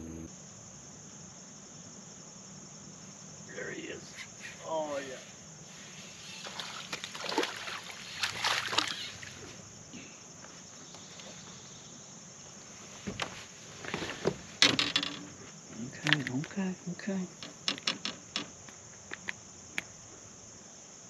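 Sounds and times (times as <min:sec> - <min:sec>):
water splashing: 0:06.4 - 0:09.4.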